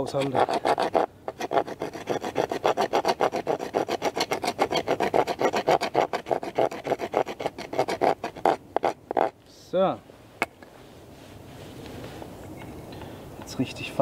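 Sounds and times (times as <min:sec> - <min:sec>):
knife scraping wood: 0:00.0 - 0:09.4.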